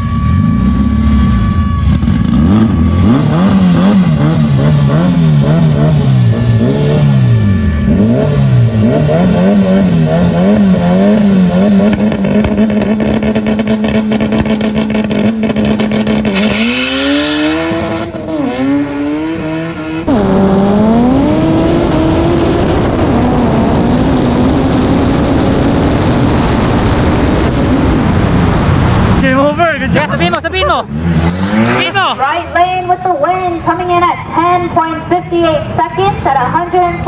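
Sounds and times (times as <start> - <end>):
engine crackle: 0.0 - 33.4
car engine revving high: 0.0 - 33.9
car accelerating through gears: 2.1 - 26.3, 29.2 - 32.8.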